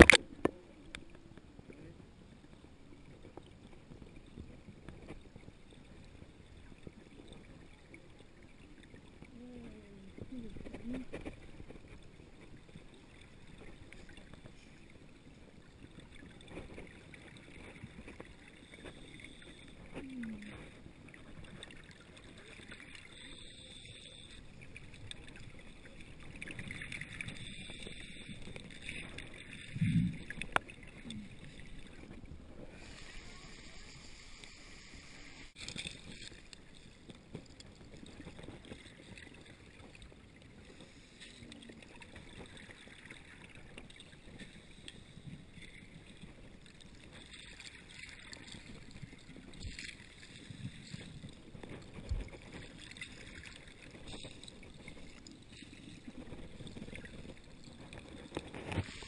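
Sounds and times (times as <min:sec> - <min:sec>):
muffled underwater noise: 0:09.2 - 0:12.0, 0:17.6 - 0:21.6, 0:22.2 - 0:36.5.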